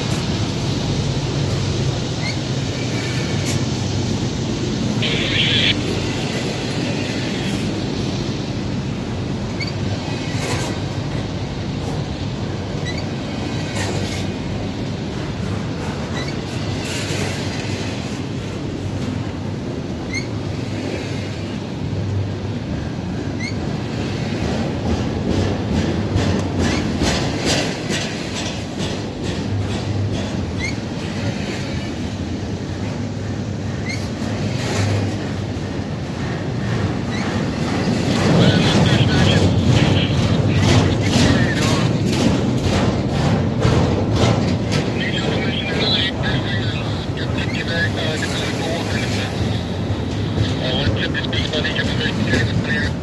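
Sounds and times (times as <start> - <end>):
train wheels rumbling on rail: 0.0 - 53.0
wheels clicking over rail joints: 24.2 - 31.7, 39.5 - 45.4.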